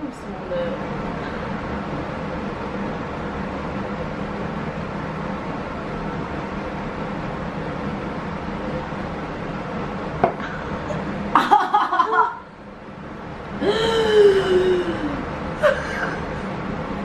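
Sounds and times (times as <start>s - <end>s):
steady background hum: 0.0s - 17.0s
woman groaning: 13.6s - 16.2s
woman gagging: 13.6s - 16.3s.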